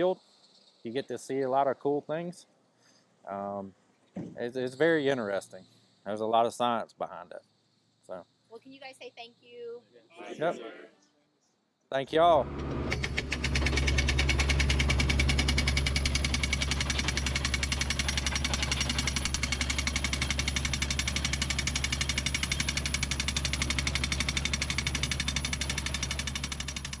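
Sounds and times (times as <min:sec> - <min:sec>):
drill rig engine drone: 0:12.4 - 0:27.0
percussion hammer pounding: 0:13.0 - 0:27.0.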